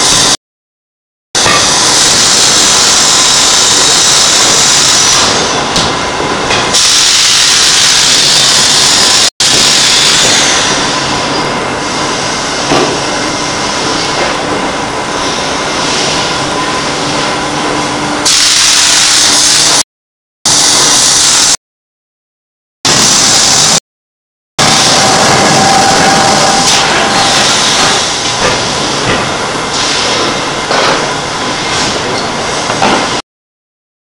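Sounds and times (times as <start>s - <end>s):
hiss of air and steam: 1.5s - 5.6s, 6.7s - 12.7s, 18.2s - 19.8s, 20.5s - 21.6s, 22.9s - 23.8s, 24.6s - 29.1s, 29.7s - 30.4s.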